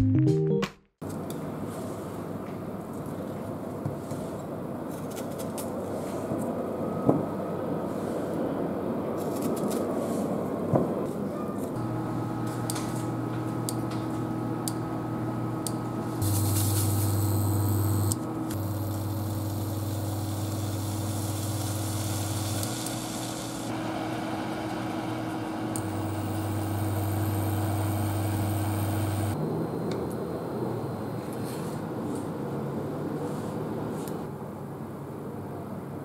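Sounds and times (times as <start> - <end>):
induction hob humming: 11.8 - 31.1
fruit cooking hiss: 16.2 - 17.7.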